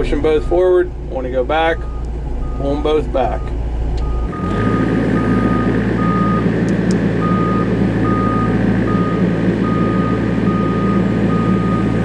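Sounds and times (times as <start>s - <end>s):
diesel engine running: 0.0s - 12.0s
travel alarm beeping: 3.4s - 6.5s, 7.2s - 12.0s.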